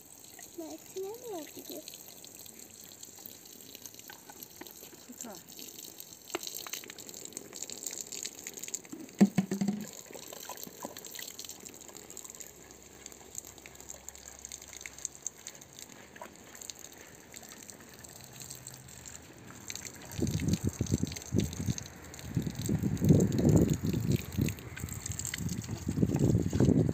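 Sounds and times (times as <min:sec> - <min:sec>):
water gushing from a hose: 0:00.0 - 0:26.9
sharp knock: 0:09.2 - 0:09.9.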